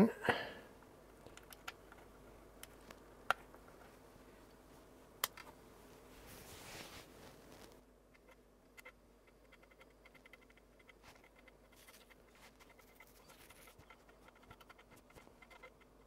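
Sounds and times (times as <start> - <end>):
floppy drive ticking: 8.1 - 16.0.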